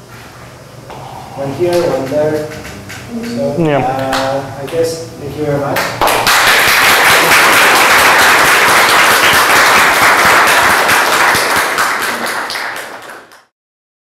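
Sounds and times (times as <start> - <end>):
audience applauding: 6.0 - 13.5.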